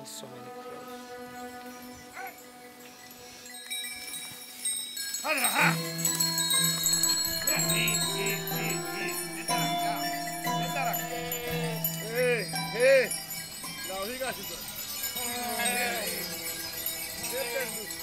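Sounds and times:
goat bells clinking: 0:01.6 - 0:18.0
goats bleating: 0:05.5 - 0:13.1.

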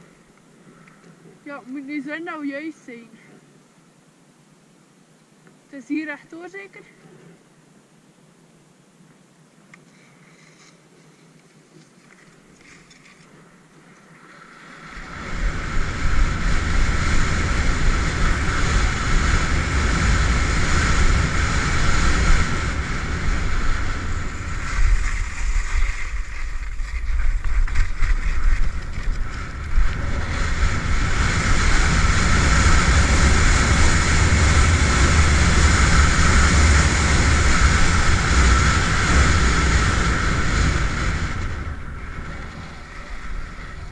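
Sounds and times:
skis hissing over snow: 0:09.9 - 0:13.5, 0:14.2 - 0:43.9
wind buffeting microphone: 0:14.8 - 0:43.9.

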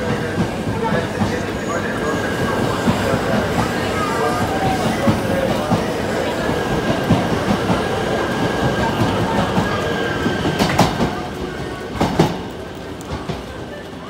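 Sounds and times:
train running noise: 0:00.0 - 0:14.0.

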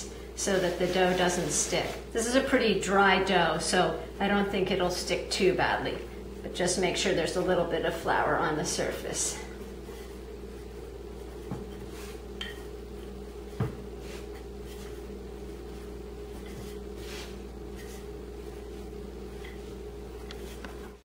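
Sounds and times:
steady background hum: 0:00.0 - 0:21.0
rolling pin rolling dough: 0:00.4 - 0:21.0.

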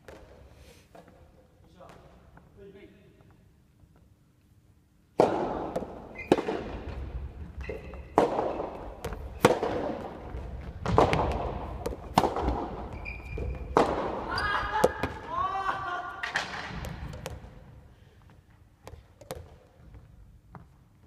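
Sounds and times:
ball bouncing on wooden floor: 0:05.2 - 0:15.2, 0:16.3 - 0:17.8, 0:18.8 - 0:20.8
shoe squeaks on floor: 0:06.1 - 0:06.4, 0:07.6 - 0:08.2, 0:12.9 - 0:14.6
tennis ball popping off rackets: 0:07.6 - 0:14.2.

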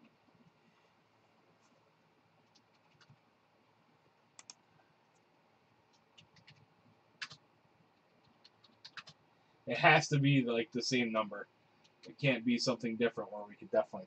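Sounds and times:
mouse and keyboard clicks: 0:04.4 - 0:05.3, 0:05.9 - 0:07.4, 0:08.2 - 0:09.2.

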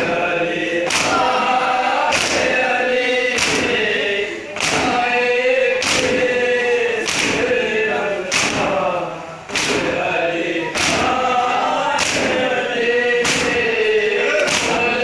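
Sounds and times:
men chanting together: 0:00.0 - 0:15.0
hands slapping chests in unison: 0:00.8 - 0:01.3, 0:02.0 - 0:02.7, 0:03.3 - 0:05.0, 0:05.8 - 0:06.3, 0:07.0 - 0:07.6, 0:08.3 - 0:08.8, 0:09.5 - 0:10.0, 0:10.7 - 0:11.2, 0:11.9 - 0:12.5, 0:13.2 - 0:13.8, 0:14.4 - 0:15.0.

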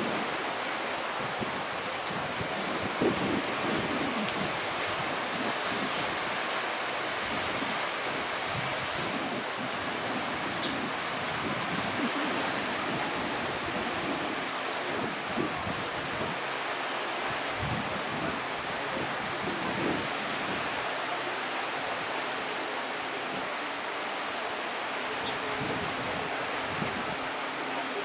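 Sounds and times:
sea waves and surf: 0:00.0 - 0:28.0
wind buffeting microphone: 0:01.2 - 0:06.4, 0:07.2 - 0:16.4, 0:17.6 - 0:20.7.

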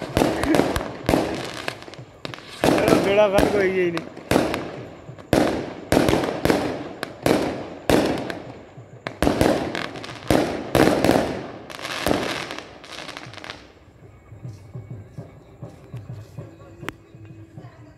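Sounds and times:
aerial fireworks bangs: 0:00.0 - 0:13.6.

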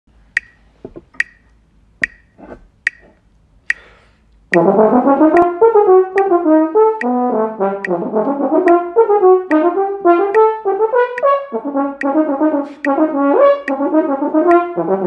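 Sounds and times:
metronome clicking: 0:00.3 - 0:14.9
french horn playing: 0:04.5 - 0:15.0.

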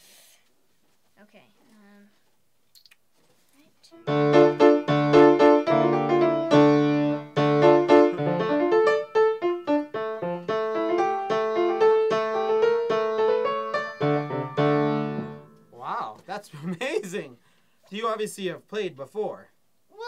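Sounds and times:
grand piano playing: 0:04.0 - 0:15.7.

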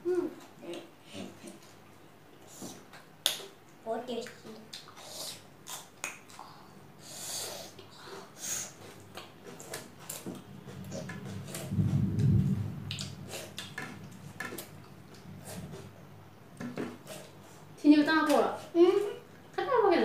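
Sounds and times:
low muffled rumble: 0:10.6 - 0:14.3.

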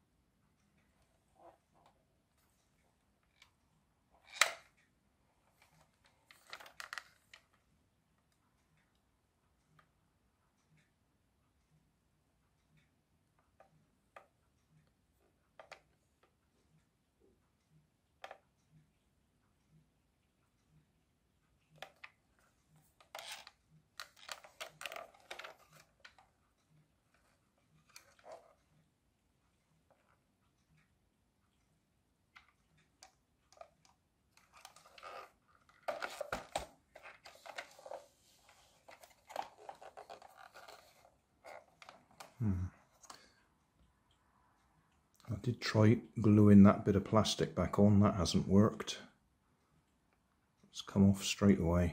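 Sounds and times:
plastic toy rubbing and clicking: 0:04.2 - 0:04.8, 0:05.4 - 0:07.6, 0:21.8 - 0:26.3, 0:27.1 - 0:28.7, 0:32.4 - 0:43.2
plastic toy clicks and knocks: 0:23.0 - 0:26.2.

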